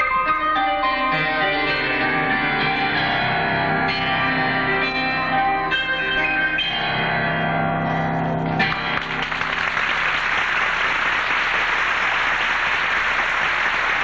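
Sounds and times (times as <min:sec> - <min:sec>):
audience applause: 0:08.6 - 0:14.0.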